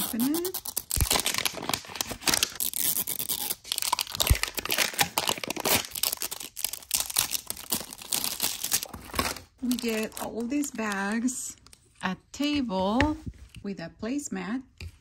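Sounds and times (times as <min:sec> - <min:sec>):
wrapping crinkling and tearing: 0:00.0 - 0:12.0.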